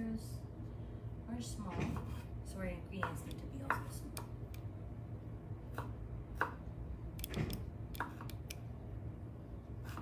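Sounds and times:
knife tapping cutting board: 3.0 - 4.0.

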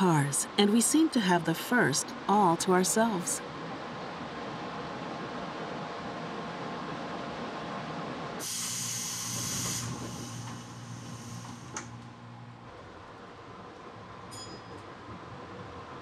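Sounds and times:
train hum: 0.0 - 16.0
compressed air hiss: 8.4 - 12.0
train doors clunking shut: 8.4 - 12.0.

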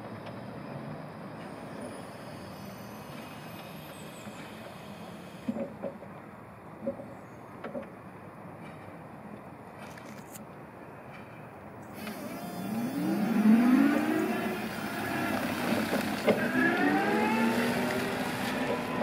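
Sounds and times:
electric forklift drive whining: 11.9 - 19.0.

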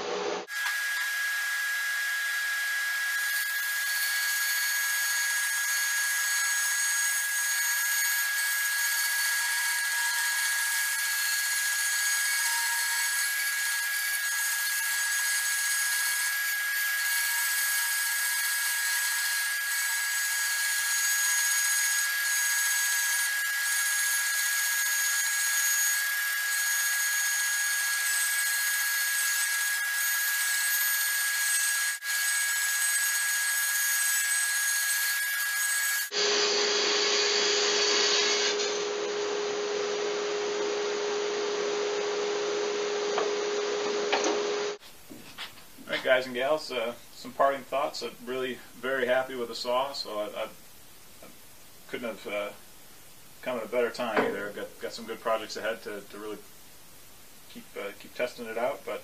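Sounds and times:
bandsaw cutting wood: 0.4 - 39.3.

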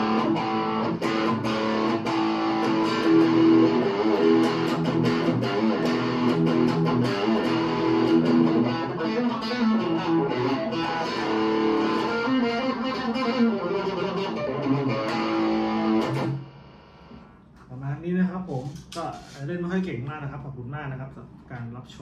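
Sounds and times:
electric guitar lead line: 0.0 - 17.4.

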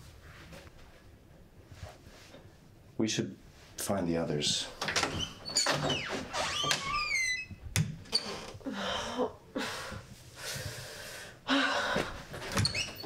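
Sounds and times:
door hinge squeaking: 4.8 - 8.6
woman breathing heavily and sighing: 8.6 - 12.5.

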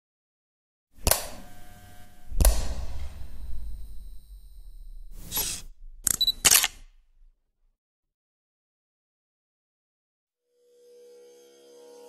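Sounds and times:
sharp hit with low tail: 2.2 - 6.1
high focus beep: 4.0 - 6.8
camera shutter clicks: 5.3 - 7.0.

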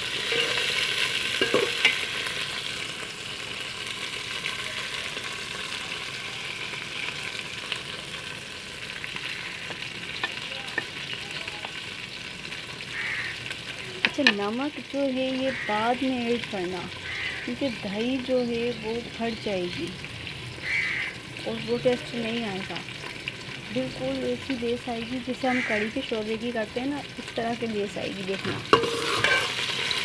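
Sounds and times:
okra sizzling in oil: 0.0 - 30.0.

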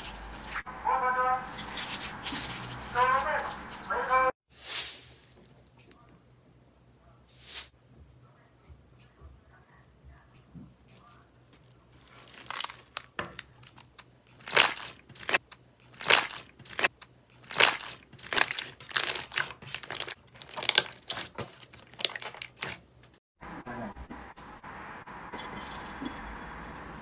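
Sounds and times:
slime squishing and popping: 12.1 - 13.5, 14.4 - 22.8.

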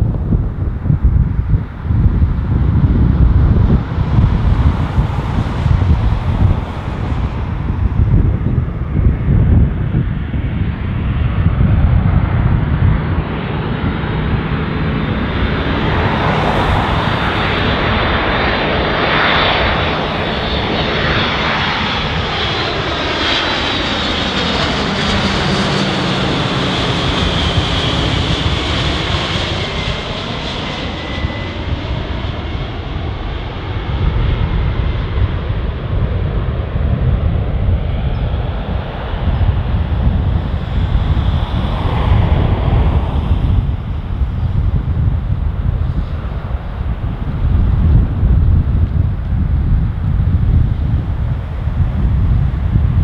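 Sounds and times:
jet aircraft passing overhead: 0.0 - 53.0.

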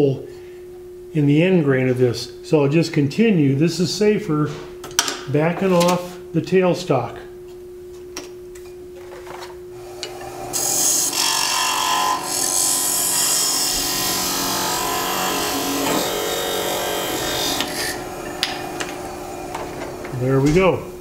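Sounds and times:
lathe humming: 9.7 - 21.0
tool scraping spinning wood: 11.8 - 20.7.

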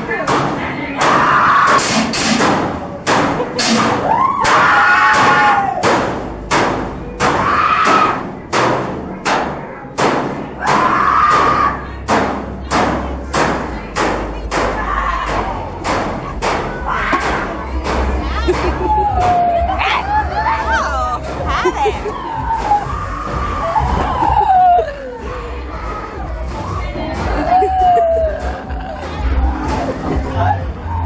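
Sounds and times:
pounding beat: 0.0 - 20.0.

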